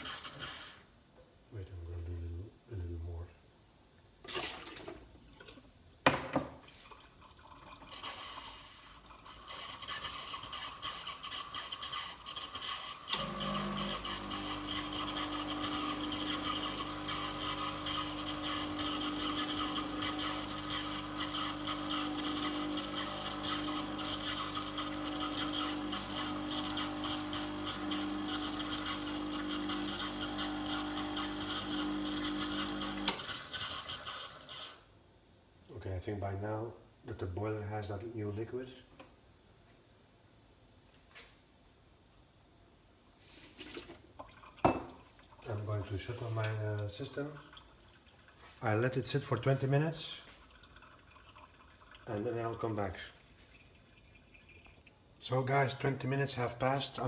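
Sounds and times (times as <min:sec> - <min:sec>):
vibratory pump humming: 0:13.1 - 0:33.2.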